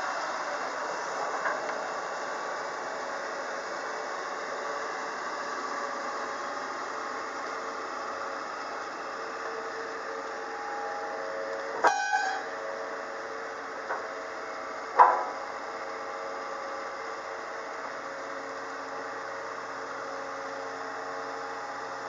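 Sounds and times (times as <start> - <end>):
excavator hydraulics whining: 5.8 - 15.6
loud metallic clanks: 15.0 - 15.4.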